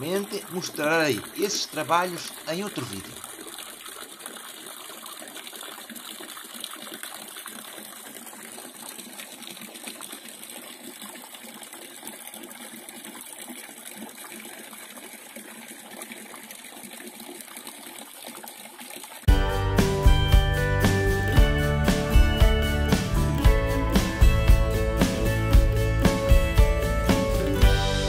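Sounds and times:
water rushing and splashing: 0.0s - 19.3s
music: 19.3s - 28.0s.

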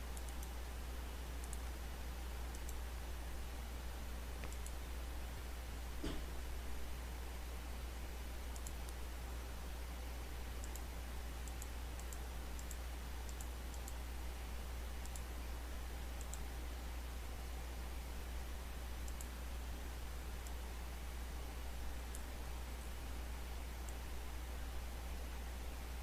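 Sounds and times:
microphone hiss: 0.0s - 26.0s
steady low hum: 0.0s - 26.0s
computer mouse clicks: 0.1s - 0.6s, 1.4s - 1.8s, 2.4s - 2.8s, 4.4s - 4.8s, 8.5s - 9.0s, 10.6s - 14.0s, 15.0s - 15.3s, 16.2s - 16.5s, 19.0s - 19.4s, 20.4s - 20.6s, 22.1s - 22.9s, 23.8s - 24.0s.

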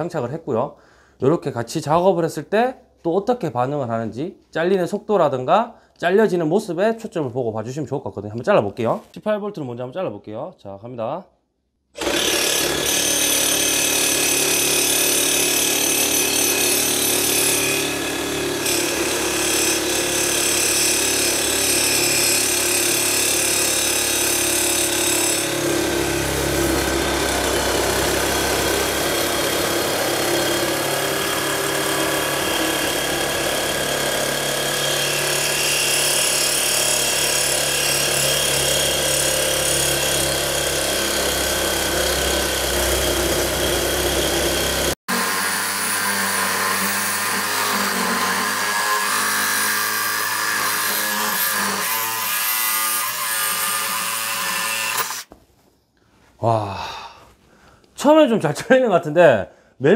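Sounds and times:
reciprocating saw cutting steel: 12.0s - 55.3s.

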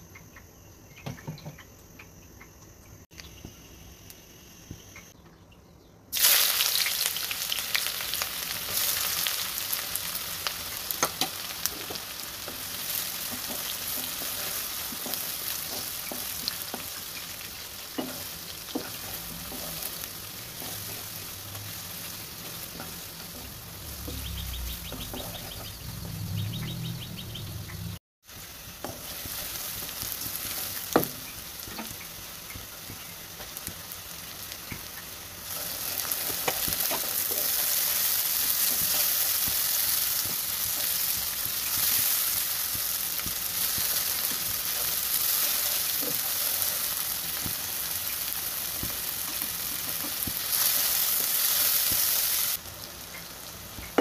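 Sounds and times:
onions sizzling in oil: 6.1s - 54.0s
wooden spatula scraping wok: 17.9s - 26.4s.

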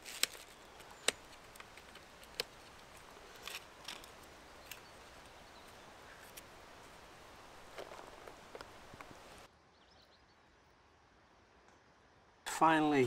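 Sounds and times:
camping gear clicks and taps: 0.0s - 7.0s, 7.6s - 9.2s
faint steady hiss: 0.0s - 13.0s.

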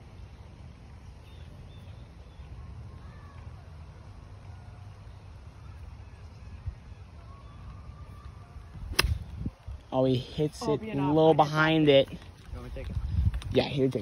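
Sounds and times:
wind rumbling on microphone: 6.0s - 10.0s, 12.1s - 14.0s.

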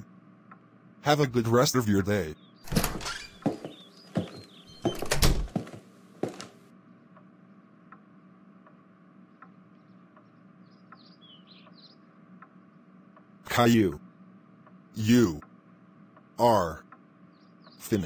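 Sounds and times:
low steady hum: 0.0s - 3.4s, 4.3s - 18.0s
faint ticks: 0.4s - 0.7s, 7.9s - 13.4s
door thudding shut: 2.7s - 5.8s.

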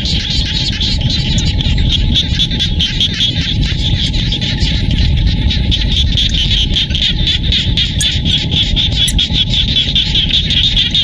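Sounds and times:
chorus of frogs calling: 0.0s - 11.0s
low rumble: 0.5s - 11.0s.

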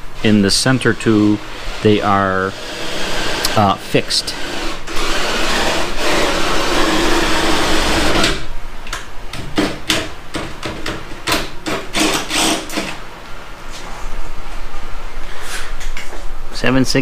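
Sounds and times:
cordless drill boring into metal: 12.0s - 12.9s.

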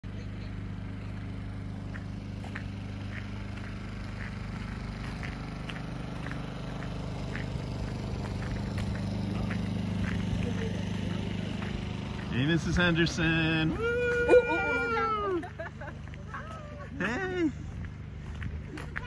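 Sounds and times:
steady low hum: 0.0s - 19.0s
footsteps walking: 1.2s - 13.3s, 15.5s - 16.8s, 17.6s - 19.0s.

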